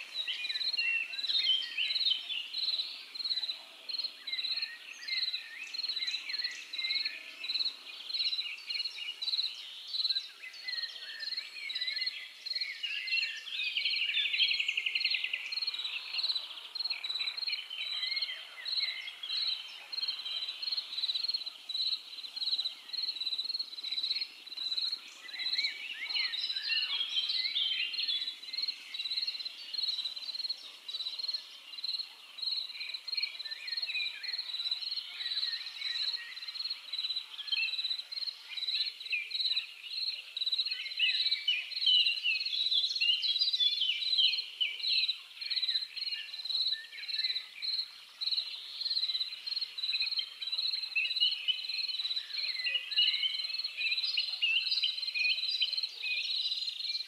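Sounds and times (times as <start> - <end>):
songbirds chirping and trilling: 0.0 - 57.0
cricket chirping: 15.0 - 41.8, 45.5 - 52.6.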